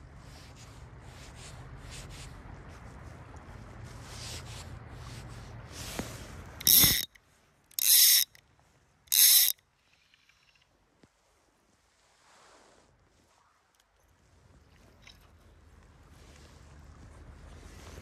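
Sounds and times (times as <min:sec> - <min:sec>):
low steady rush: 0:00.0 - 0:18.0
fishing reel ratchet buzzing: 0:06.6 - 0:08.4, 0:09.1 - 0:10.6.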